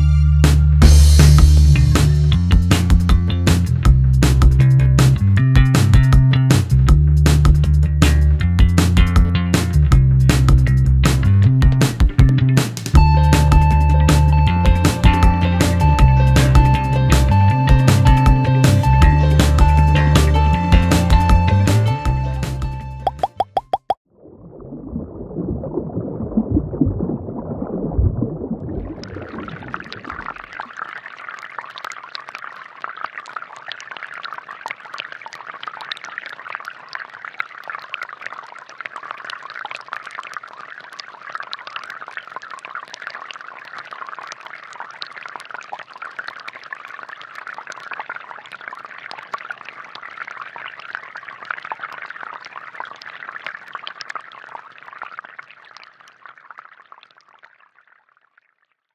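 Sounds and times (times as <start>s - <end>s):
low rumble: 0.0s - 12.4s, 24.4s - 30.2s
water streams splashing on stones: 28.6s - 58.5s.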